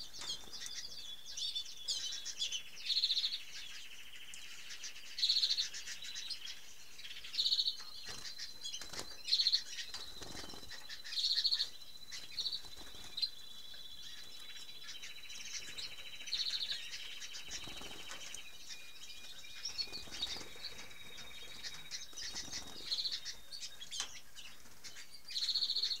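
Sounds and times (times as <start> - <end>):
canaries chirping: 0.0 - 26.0
trilled bird song: 0.0 - 26.0
wings fluttering: 8.0 - 11.0, 12.1 - 13.3, 17.2 - 18.5, 19.6 - 23.4.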